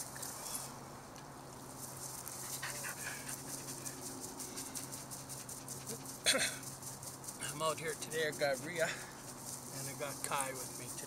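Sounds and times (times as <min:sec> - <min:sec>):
dogs moving in long grass: 0:01.4 - 0:11.0
dogs panting: 0:02.2 - 0:07.0.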